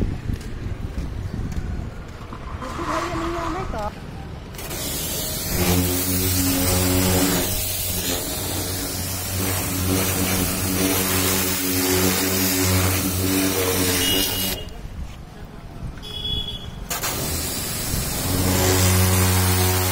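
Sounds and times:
pressure washer motor hum: 4.5s - 14.7s, 16.9s - 19.9s
pressure washer water spray hissing: 4.5s - 14.7s, 16.8s - 19.9s.

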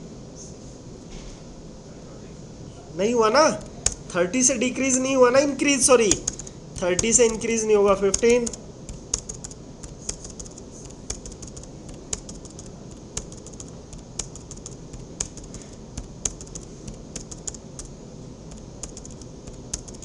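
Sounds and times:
keyboard keys clicking: 3.6s - 4.1s, 6.0s - 17.9s, 18.5s - 20.0s.

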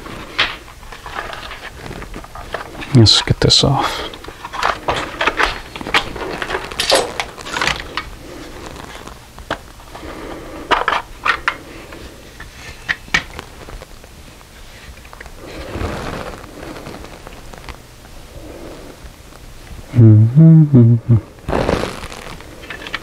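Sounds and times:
plastic clicks snaps and scraping: 4.1s - 8.1s.

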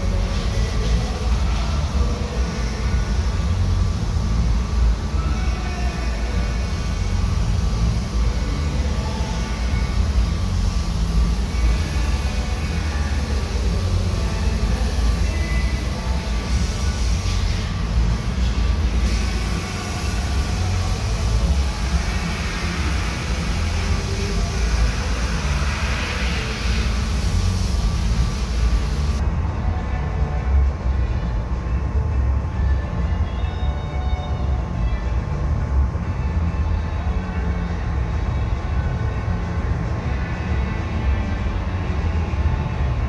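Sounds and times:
ventilation fans rumbling: 0.0s - 43.0s.

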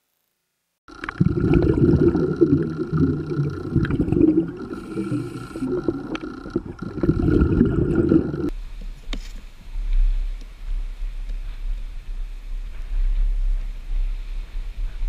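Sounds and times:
underwater clicks: 0.9s - 8.5s
underwater gurgling and bubbling: 0.9s - 8.5s.

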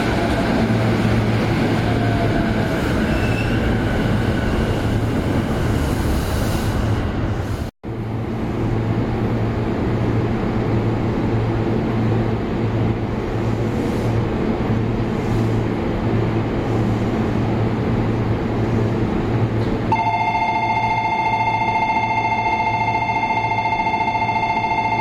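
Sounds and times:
electric train humming: 8.2s - 25.0s
electronic departure bell ringing: 19.9s - 25.0s.

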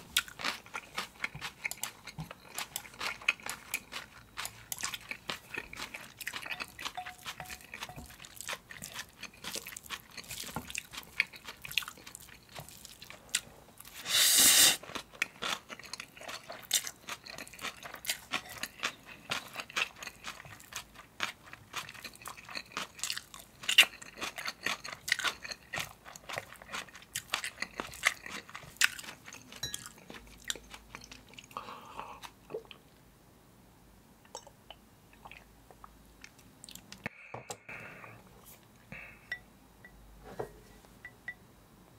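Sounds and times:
crunchy chewing of noodles: 0.0s - 32.8s.

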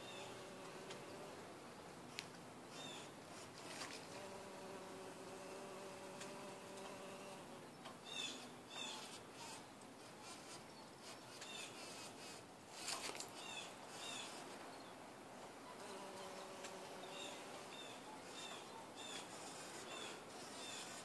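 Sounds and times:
bumble bee buzzing: 0.0s - 1.4s, 4.0s - 7.6s, 15.8s - 17.8s.

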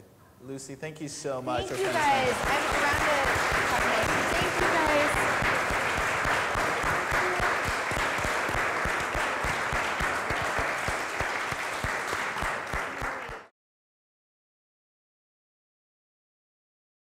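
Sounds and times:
audience applauding: 1.6s - 13.5s.

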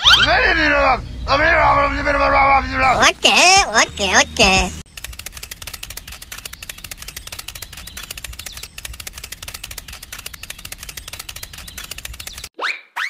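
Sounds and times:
rapid light clicks: 4.9s - 12.5s.

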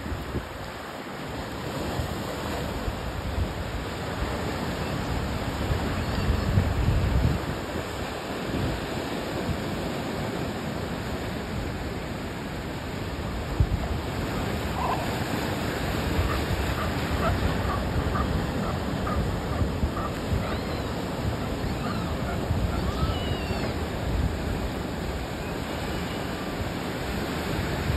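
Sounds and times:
wind buffeting microphone: 2.7s - 9.6s, 13.4s - 25.4s.

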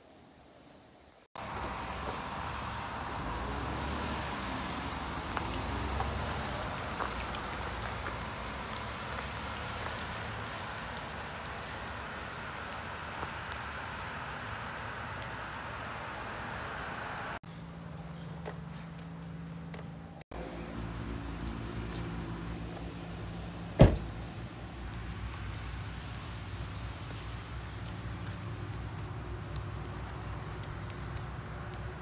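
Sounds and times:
tyres hissing on wet asphalt: 1.4s - 17.4s.

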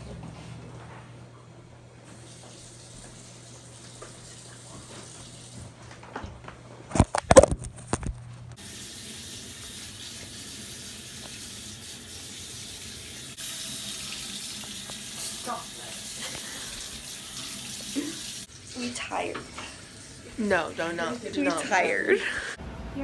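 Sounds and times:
tap water running into sink: 2.1s - 5.7s, 8.6s - 21.9s.

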